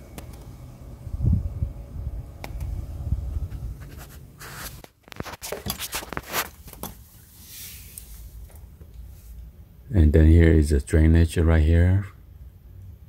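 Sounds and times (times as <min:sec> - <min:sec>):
camera handling rumble: 0:03.4 - 0:07.0
scrapes and rustles: 0:03.4 - 0:09.5.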